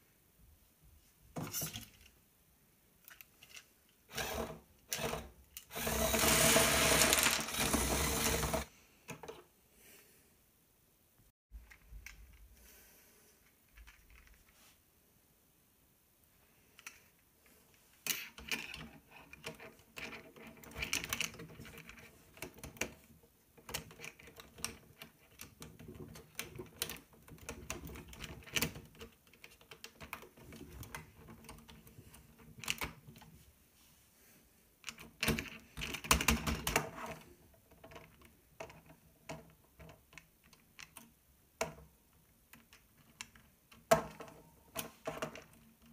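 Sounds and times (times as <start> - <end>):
plastic parts clicking and rattling: 3.0 - 9.4, 13.4 - 14.4, 18.0 - 33.3, 34.8 - 45.9.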